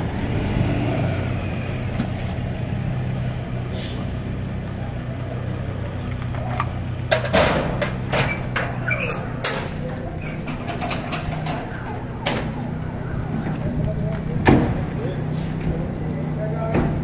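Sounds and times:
metal cage clanks and thuds: 0:07.1 - 0:12.5.

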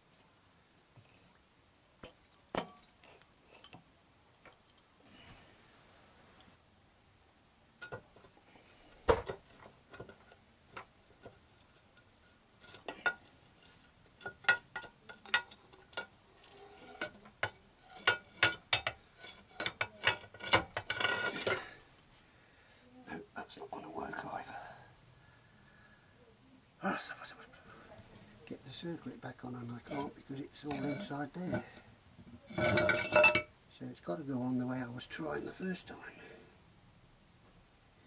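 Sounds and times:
metal parts clinking: 0:14.2 - 0:21.6.

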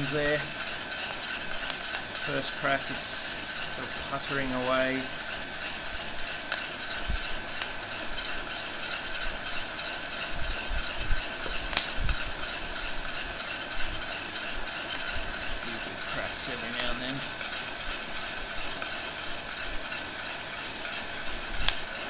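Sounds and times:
heat gun blowing: 0:00.0 - 0:20.1
coffee beans rattling in pot: 0:00.0 - 0:22.0
beans cracking clicks: 0:11.4 - 0:12.6, 0:14.8 - 0:17.2, 0:21.6 - 0:22.0.

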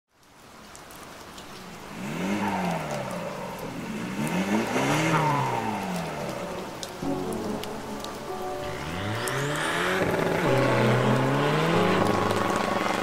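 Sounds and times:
car engines revving: 0:01.9 - 0:06.8, 0:08.6 - 0:13.0.

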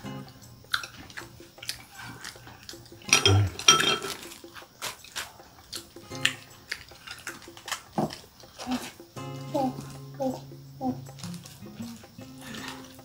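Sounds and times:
chopsticks clinking on bowls: 0:00.7 - 0:04.6
dish clatter and rustling: 0:03.0 - 0:04.8.

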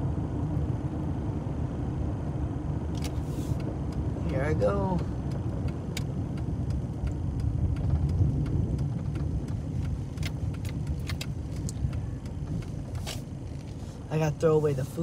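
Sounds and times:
engine and tyre rumble: 0:00.0 - 0:15.0
sharp clicks: 0:05.3 - 0:13.0.

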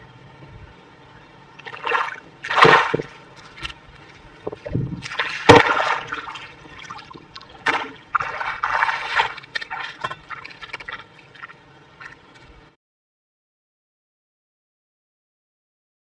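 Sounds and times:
muddy water splashing by hand: 0:01.6 - 0:03.8, 0:04.5 - 0:12.2.

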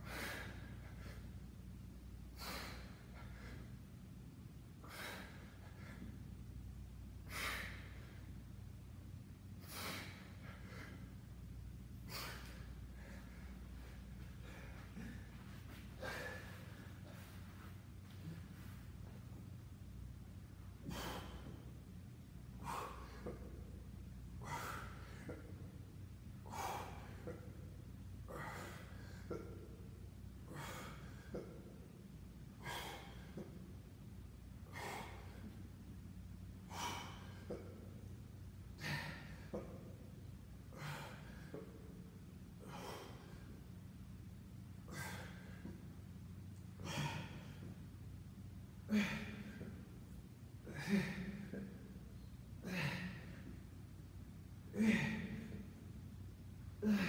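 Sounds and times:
man breathing hard: 0:00.0 - 0:01.5, 0:02.3 - 0:03.9, 0:04.8 - 0:06.3, 0:07.2 - 0:08.4, 0:09.6 - 0:19.4, 0:20.6 - 0:21.8, 0:22.5 - 0:23.7, 0:26.4 - 0:31.9, 0:32.5 - 0:33.8, 0:36.6 - 0:38.1, 0:42.6 - 0:43.7, 0:44.8 - 0:46.0, 0:48.8 - 0:49.9, 0:50.6 - 0:52.0, 0:56.8 - 0:57.0
steady low hum: 0:00.0 - 0:57.0.

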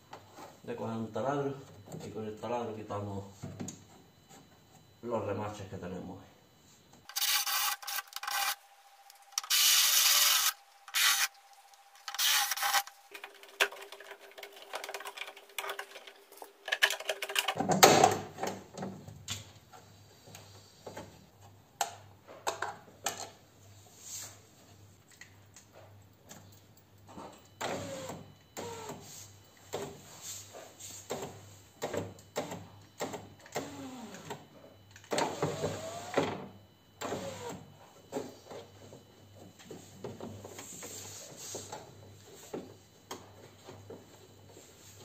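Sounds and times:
clicks and scraping of parts: 0:07.0 - 0:11.4, 0:12.0 - 0:17.8
electric drill whining and grinding: 0:07.1 - 0:08.6, 0:09.4 - 0:11.4, 0:12.1 - 0:12.9.

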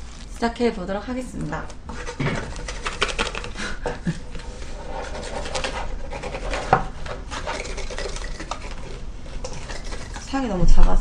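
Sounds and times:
plastic containers rustling and clicking: 0:01.4 - 0:04.4.

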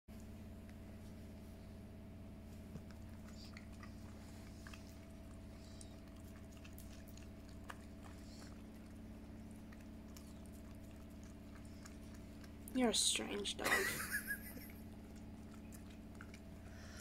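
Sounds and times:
steady low hum: 0:00.1 - 0:17.0
puppy licking wet smacks: 0:02.7 - 0:13.1, 0:14.6 - 0:16.8.

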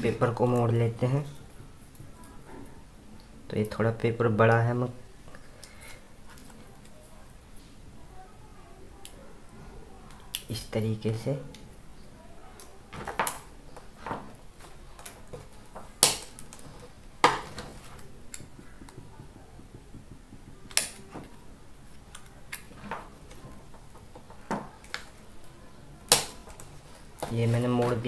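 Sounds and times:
stiff paper folding and snapping: 0:12.6 - 0:18.9, 0:26.0 - 0:28.0.

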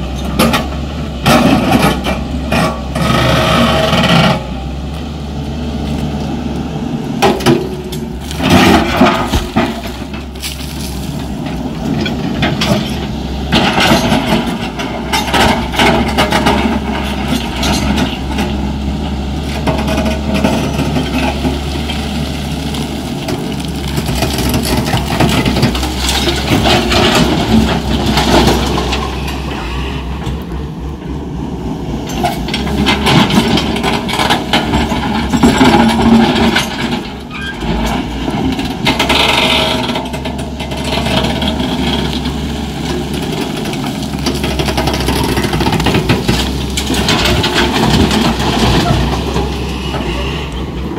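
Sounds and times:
excavator diesel engine running: 0:00.0 - 0:50.9
earth and stones clattering: 0:07.2 - 0:18.3, 0:19.6 - 0:29.1, 0:32.5 - 0:50.9.

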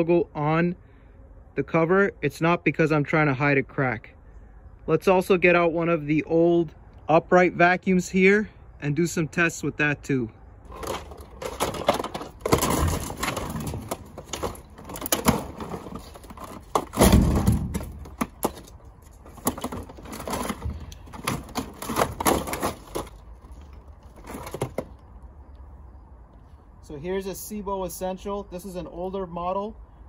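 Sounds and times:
plastic and metal parts clattering: 0:10.7 - 0:25.1
heavy thump: 0:16.7 - 0:18.2.

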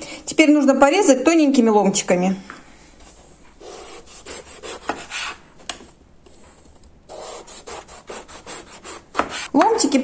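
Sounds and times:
knife slicing eggplant: 0:03.6 - 0:05.8, 0:07.1 - 0:09.7.

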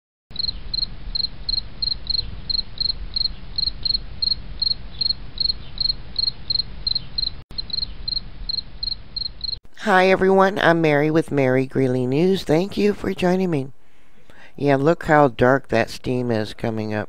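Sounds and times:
insect chirping: 0:00.3 - 0:09.6.

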